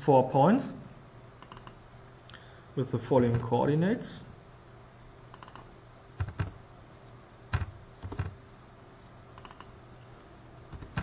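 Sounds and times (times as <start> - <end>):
computer keyboard keystrokes: 1.4 - 1.8, 5.3 - 6.6, 7.5 - 8.4, 9.4 - 9.7, 10.7 - 11.0.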